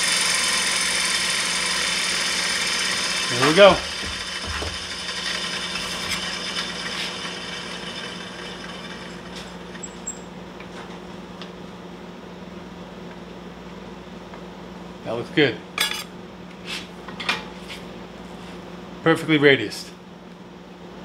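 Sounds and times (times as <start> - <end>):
sanding machine humming: 0.0 - 9.9.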